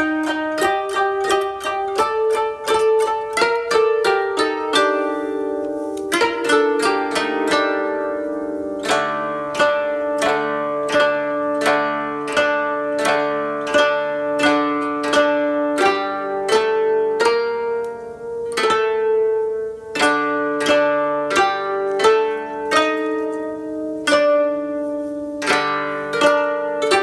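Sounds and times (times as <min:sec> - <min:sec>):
koto ensemble melody: 0:00.0 - 0:27.0.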